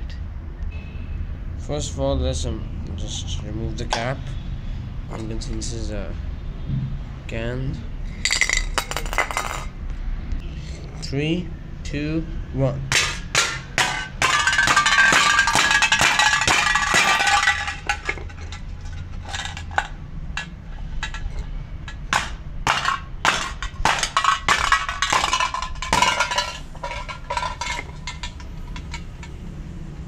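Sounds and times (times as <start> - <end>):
hammer crushing metal can: 12.9 - 29.4.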